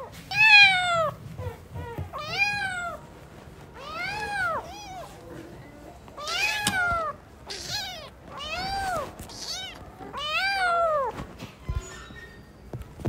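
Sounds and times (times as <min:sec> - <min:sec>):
kittens meowing: 0:06.2 - 0:11.1.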